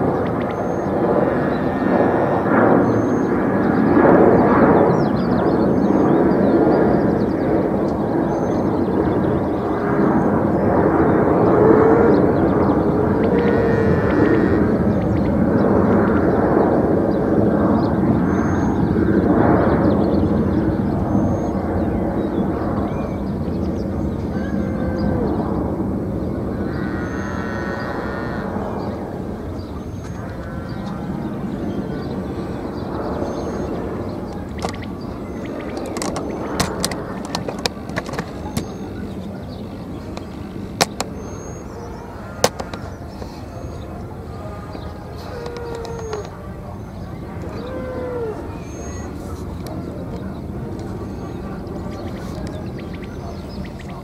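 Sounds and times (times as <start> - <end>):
airplane taking off: 0.0 - 54.0
steady low rumble: 0.0 - 54.0
sharp clicks and pops: 35.7 - 38.8, 40.2 - 41.1.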